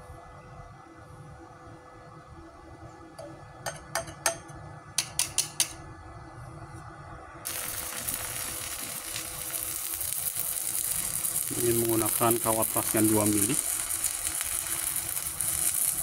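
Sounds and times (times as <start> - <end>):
welding rod tapping steel: 3.7 - 5.8
welding arc crackling: 7.4 - 16.0.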